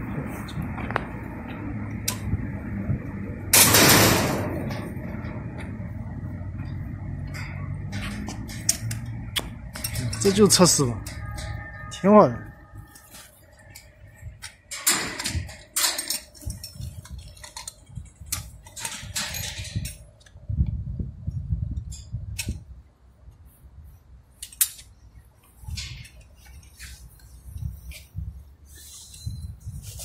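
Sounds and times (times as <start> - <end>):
low rumbling: 0.0 - 15.7.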